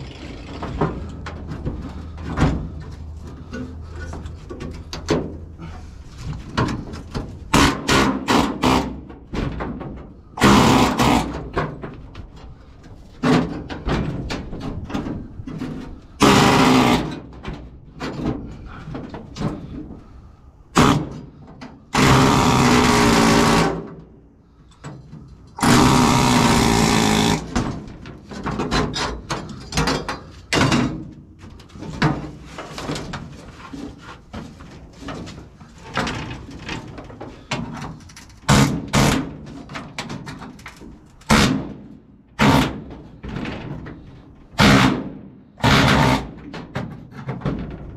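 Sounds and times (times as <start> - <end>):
pneumatic air hammer on metal: 7.5 - 9.1, 10.3 - 11.6, 16.2 - 17.3, 20.7 - 21.3, 21.9 - 24.0, 25.6 - 27.8, 38.0 - 39.5, 41.2 - 42.9, 44.6 - 46.5.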